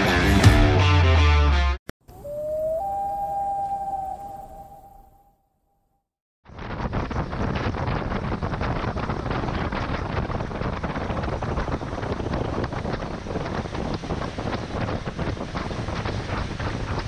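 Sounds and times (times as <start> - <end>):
wind buffeting microphone: 2.1 - 5.2, 6.5 - 17.0
boat running noise: 6.9 - 17.0.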